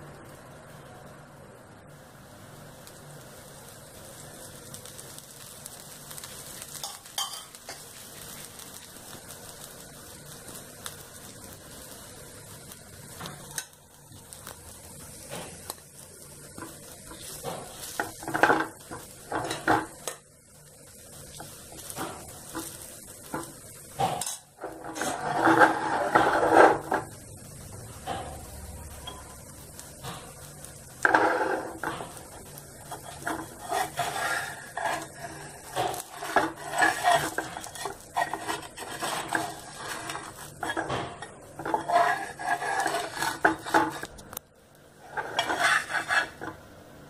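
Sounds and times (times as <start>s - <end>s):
food sizzling on griddle: 0.0s - 47.0s
steel spoon scraping bowl: 24.2s - 26.9s, 32.9s - 44.1s, 45.0s - 46.6s.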